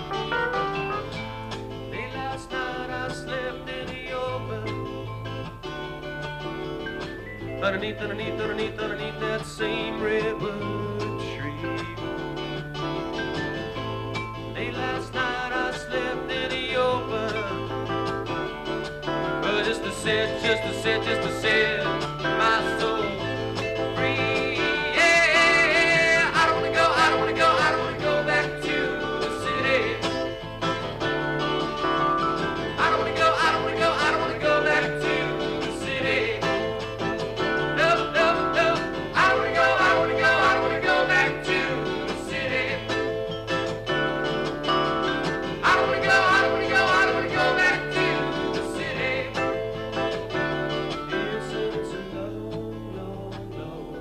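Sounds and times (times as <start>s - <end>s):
keyboard: 0.0s - 54.0s
strummed acoustic guitar: 0.0s - 54.0s
man singing: 1.9s - 5.1s, 7.6s - 12.1s, 13.3s - 18.1s, 19.4s - 30.4s, 32.3s - 43.2s, 45.6s - 49.7s, 51.1s - 54.0s.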